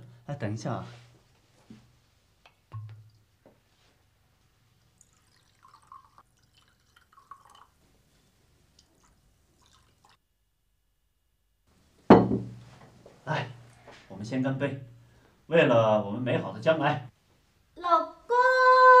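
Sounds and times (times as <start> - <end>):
wine pouring into glasses: 4.9 - 7.8, 8.8 - 10.2.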